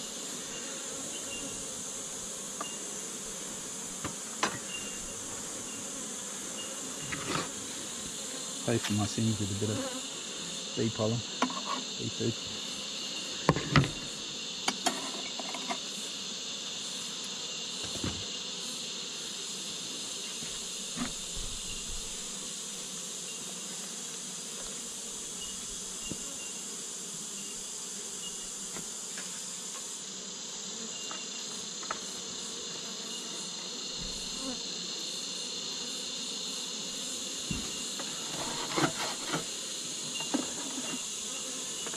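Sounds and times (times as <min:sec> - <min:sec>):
honeybees buzzing: 0:00.0 - 0:41.9
hive tool and frames knocking: 0:04.0 - 0:04.9, 0:37.4 - 0:39.5.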